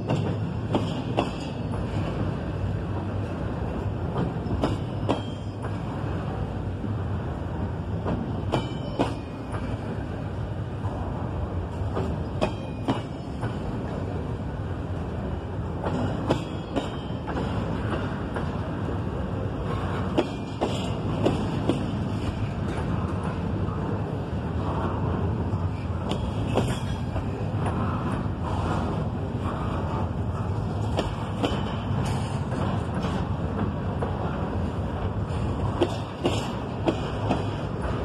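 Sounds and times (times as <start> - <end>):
train rumbling past: 0.0 - 38.0.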